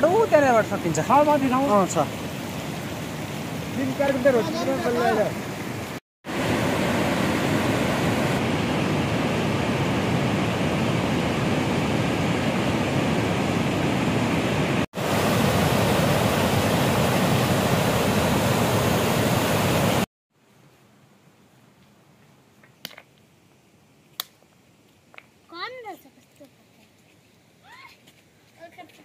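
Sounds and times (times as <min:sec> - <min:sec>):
river water rushing: 0:00.0 - 0:20.1.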